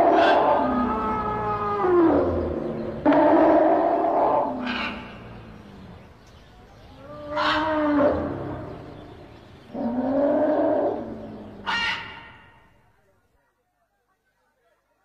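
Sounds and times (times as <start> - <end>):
elephant calling loudly: 0.0 - 5.4, 9.7 - 12.6.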